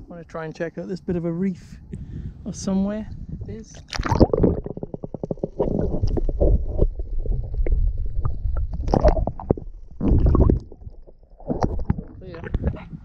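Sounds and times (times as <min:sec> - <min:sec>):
muffled underwater rumble and gurgling: 0:03.1 - 0:13.0.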